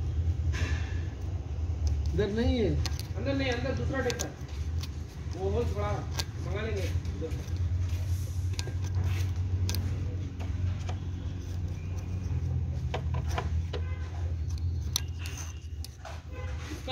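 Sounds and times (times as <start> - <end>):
screwdriver tapping metal blades: 1.8 - 7.6, 8.5 - 16.1.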